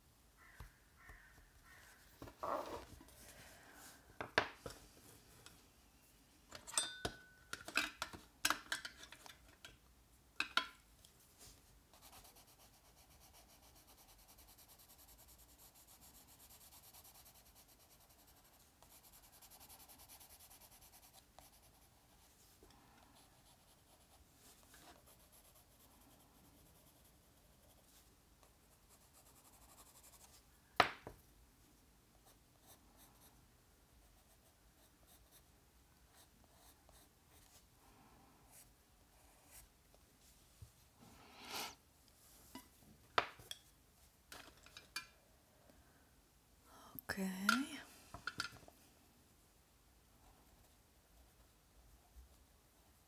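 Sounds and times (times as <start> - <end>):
pencil scratching on paper: 11.9 - 22.2, 23.2 - 24.2, 24.8 - 27.9.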